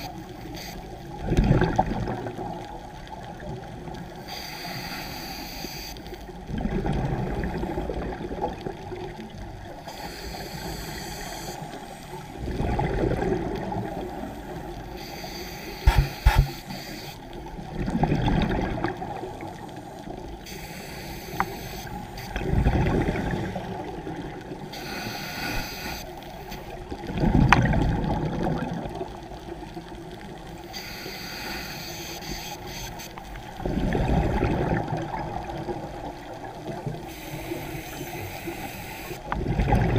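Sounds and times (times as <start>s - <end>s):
regulator hiss on inhale: 0.0s - 1.1s, 4.2s - 6.3s, 9.7s - 12.4s, 13.9s - 17.4s, 19.4s - 22.4s, 24.6s - 26.8s, 30.6s - 33.4s, 37.0s - 39.4s.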